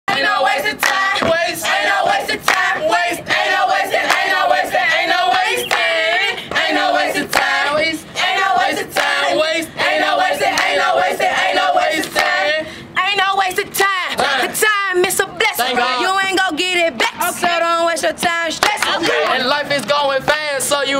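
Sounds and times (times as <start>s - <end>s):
children's choir singing: 0.1s - 12.6s.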